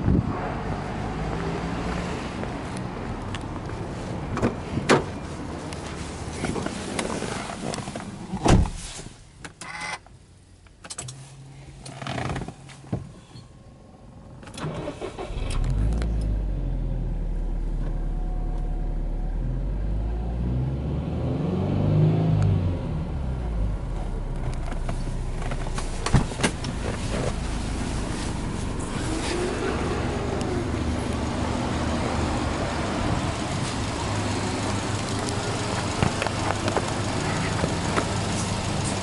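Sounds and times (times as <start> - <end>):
car engine starting and idling: 13.5 - 39.0
engine revving: 14.6 - 25.7, 27.1 - 39.0.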